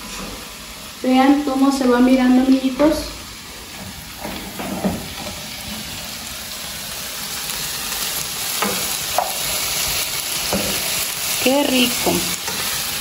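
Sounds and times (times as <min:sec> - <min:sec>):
vegetables sizzling in pan: 0:00.0 - 0:13.0
spoon knocking pan: 0:08.6 - 0:09.5, 0:10.4 - 0:11.0, 0:11.8 - 0:12.7.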